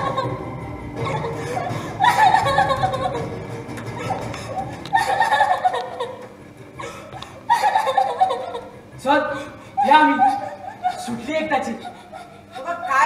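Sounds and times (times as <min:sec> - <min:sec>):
laughter bursts: 0:01.0 - 0:03.3, 0:03.9 - 0:08.8, 0:09.8 - 0:12.8.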